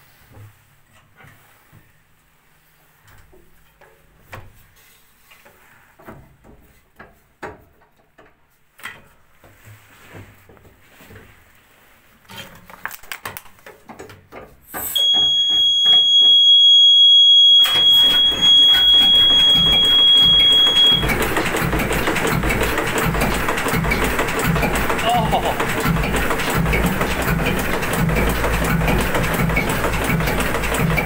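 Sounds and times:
high steady alarm tone: 0:15.0 - 0:21.4
diesel engine running: 0:17.6 - 0:31.0
control clicks and knocks: 0:17.7 - 0:31.0.

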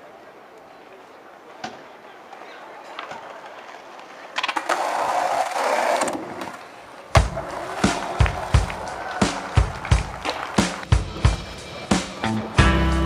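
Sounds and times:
skateboard wheels rolling on asphalt: 0:00.0 - 0:12.2
music with heavy drum beat: 0:07.2 - 0:13.0.

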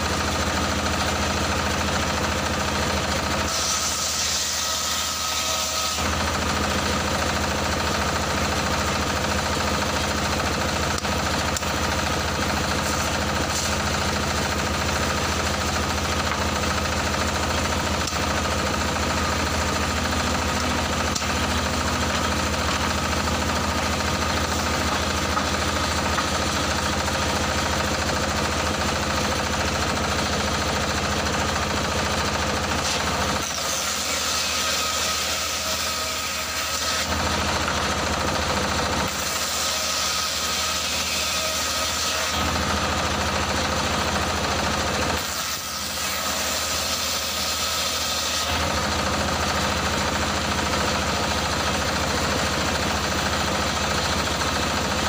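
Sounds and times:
diesel engine running: 0:00.0 - 0:03.5, 0:06.0 - 0:33.6, 0:37.1 - 0:39.2, 0:42.4 - 0:45.2, 0:48.6 - 0:55.0
circular saw ripping wood: 0:00.0 - 0:30.8, 0:31.4 - 0:55.0.

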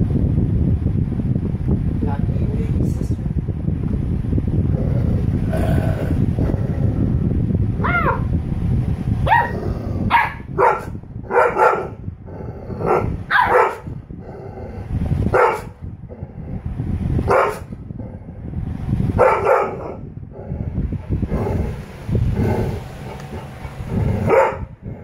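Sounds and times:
dogs barking and yipping: 0:09.3 - 0:12.0, 0:12.8 - 0:13.9, 0:19.2 - 0:20.0, 0:22.6 - 0:24.8.

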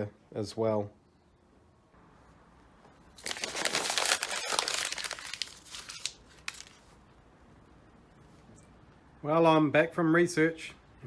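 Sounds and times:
paper crumpling: 0:03.2 - 0:06.9.

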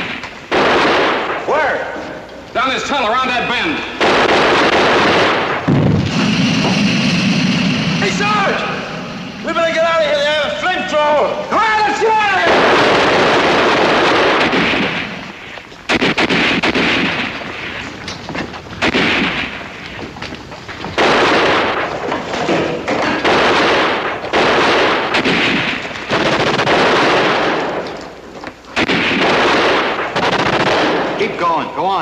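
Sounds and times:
machine-gun bursts: 0:04.0 - 0:06.5, 0:12.5 - 0:15.2, 0:23.0 - 0:27.8, 0:28.8 - 0:31.1
loud rushing blasts: 0:04.0 - 0:17.9.

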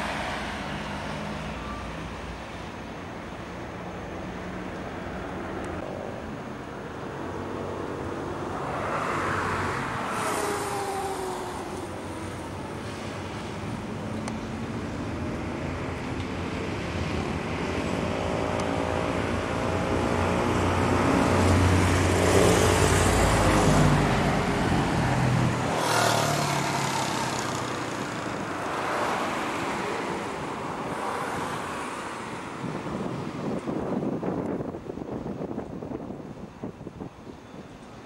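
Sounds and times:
road traffic: 0:00.0 - 0:38.0
vehicle passing close: 0:17.2 - 0:34.4.

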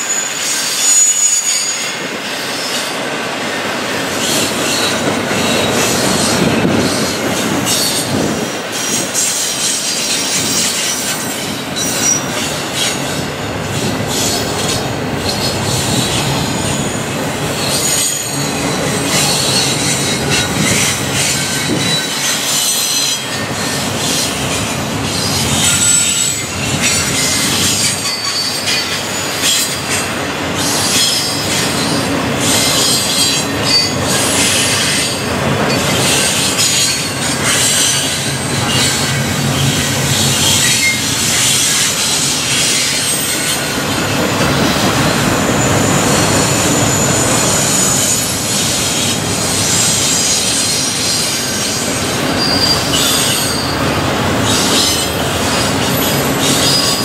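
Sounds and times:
high-pitched wheel squeals: 0:00.0 - 0:02.9, 0:17.6 - 0:24.3, 0:25.1 - 0:30.0, 0:30.6 - 0:43.8, 0:45.1 - 0:57.0
freight train wheels rolling: 0:00.0 - 0:57.0.

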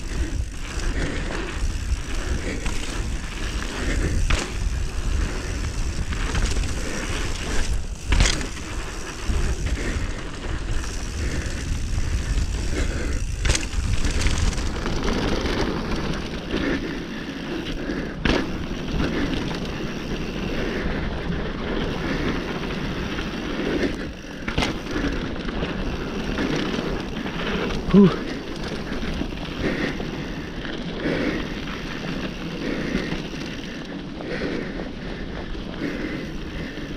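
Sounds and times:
bike tyres rumbling on dirt: 0:00.0 - 0:36.9
bike knocking over bumps: 0:03.8 - 0:05.0, 0:07.6 - 0:09.0, 0:13.2 - 0:15.7, 0:24.4 - 0:25.1.

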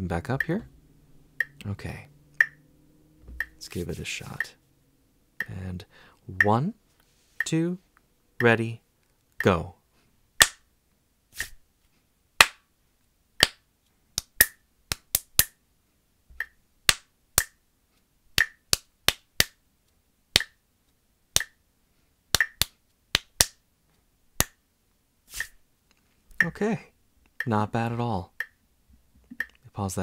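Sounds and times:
metronome ticking: 0:00.1 - 0:02.7, 0:03.3 - 0:03.7, 0:04.4 - 0:04.6, 0:05.4 - 0:05.6, 0:06.3 - 0:06.8, 0:16.3 - 0:17.6, 0:18.4 - 0:19.5, 0:21.4 - 0:21.6, 0:22.4 - 0:22.7, 0:26.3 - 0:26.6, 0:27.3 - 0:27.7, 0:28.3 - 0:28.7, 0:29.3 - 0:29.6
hand claps: 0:12.4 - 0:12.6, 0:18.4 - 0:19.6, 0:20.4 - 0:20.6, 0:22.4 - 0:23.6.

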